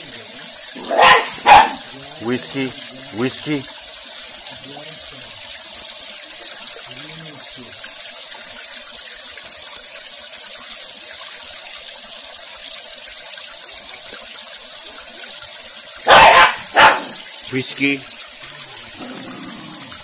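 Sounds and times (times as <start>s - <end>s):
water splashing into pond: 0.0s - 20.0s.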